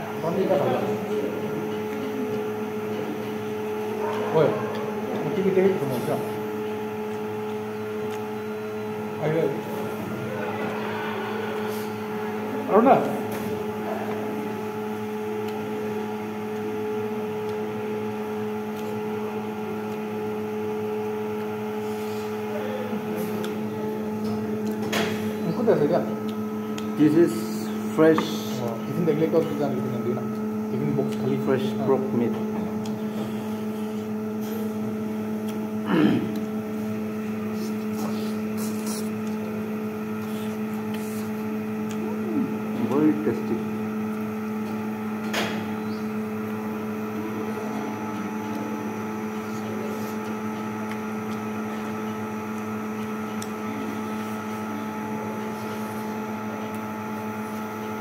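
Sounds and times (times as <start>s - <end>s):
steady electrical hum: 0.0s - 58.0s
faint clicks of eating: 6.4s - 8.7s, 13.3s - 25.2s, 26.1s - 45.5s, 47.7s - 58.0s
wet mouth clicks: 7.0s - 8.4s, 18.6s - 19.1s, 35.4s - 36.6s, 37.4s - 42.2s
short vocal sound: 35.8s - 36.4s.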